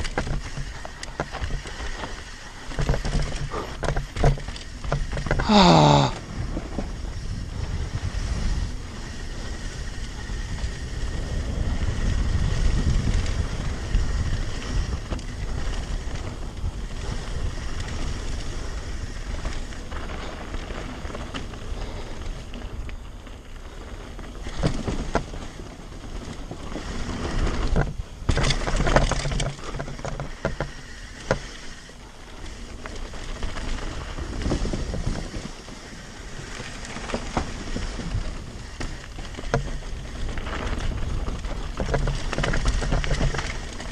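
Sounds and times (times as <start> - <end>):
bike knocks and rattles: 0.0 - 22.2, 24.0 - 43.9
bike tyre rumble: 0.0 - 43.9
wind on microphone: 2.7 - 23.1.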